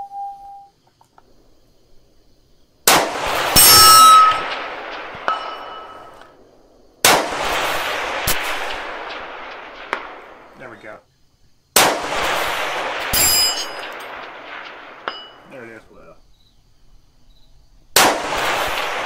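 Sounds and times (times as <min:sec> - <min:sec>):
rifle shots echoing: 0:02.8 - 0:11.0, 0:11.8 - 0:15.8, 0:18.0 - 0:19.0
metallic clang ringing: 0:03.6 - 0:04.5, 0:05.3 - 0:06.2, 0:13.1 - 0:14.2, 0:15.0 - 0:15.5
metallic clinks: 0:05.3 - 0:06.3, 0:13.1 - 0:14.2, 0:15.0 - 0:15.7.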